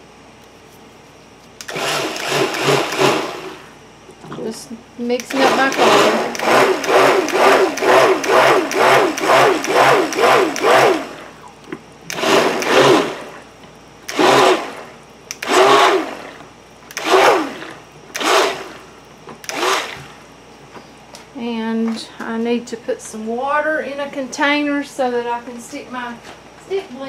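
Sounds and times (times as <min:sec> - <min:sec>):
stick blender whirring in bursts: 0:01.6 - 0:03.8, 0:05.2 - 0:11.4, 0:12.1 - 0:13.4, 0:14.0 - 0:20.2.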